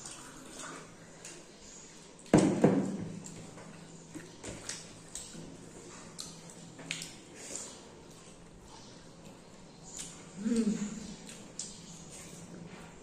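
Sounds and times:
wet chewing and lip smacks: 3.2s - 13.0s.

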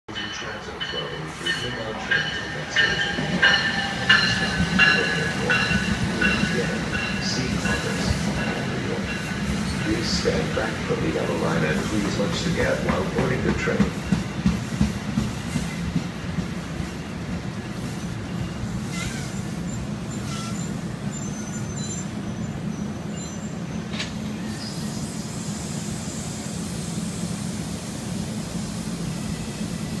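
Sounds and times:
train low hum: 0.0s - 30.0s
brakes squealing: 17.9s - 26.6s.

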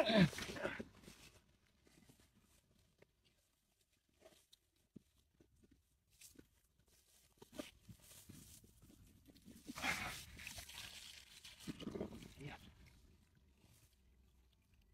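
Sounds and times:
small handling noises: 0.2s - 14.9s.

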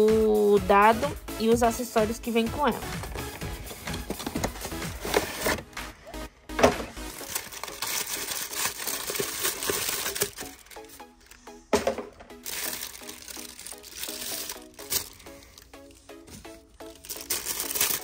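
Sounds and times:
light background music: 0.0s - 18.0s
packaging crinkling and rustling: 2.9s - 5.7s, 6.8s - 18.0s.

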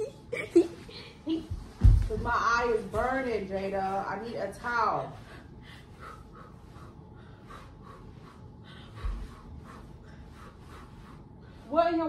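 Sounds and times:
shuffling movement: 0.6s - 12.0s
foot thudding on floor: 1.4s - 3.4s
faint breathing: 5.1s - 11.8s.

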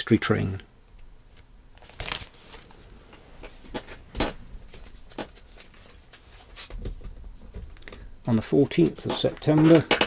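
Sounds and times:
record sleeves knocking and rustling: 1.2s - 10.0s.

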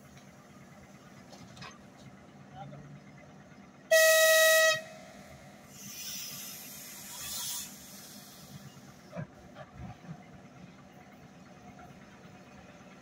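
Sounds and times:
train brakes air hiss: 3.9s - 9.1s.

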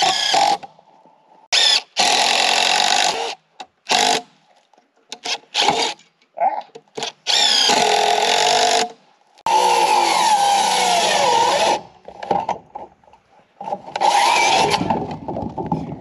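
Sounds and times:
cordless drill driving screws into wood: 0.0s - 0.7s, 1.6s - 4.3s, 5.1s - 6.0s, 7.0s - 11.9s, 13.9s - 15.2s.

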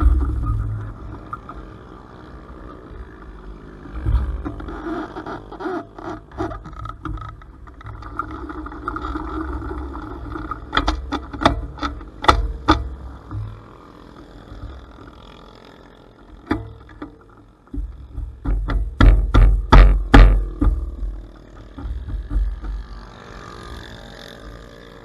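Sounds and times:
motorcycle engine running: 0.0s - 25.0s
sharp knocks: 16.5s - 22.9s.

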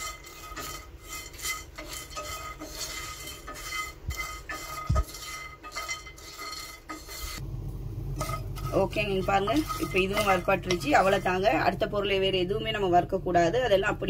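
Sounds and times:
spatula scraping spices in pan: 0.0s - 7.4s, 8.1s - 13.7s.

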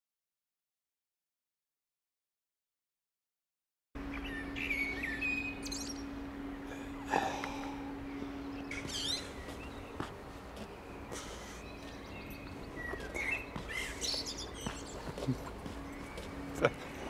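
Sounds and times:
birds chirping and trilling: 4.0s - 17.0s
steady low hum: 4.0s - 17.0s.

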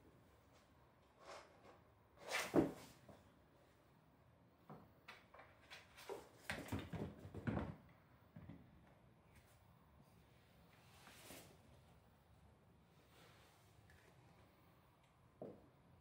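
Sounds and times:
cats scuffling on wooden floor: 5.4s - 7.8s.

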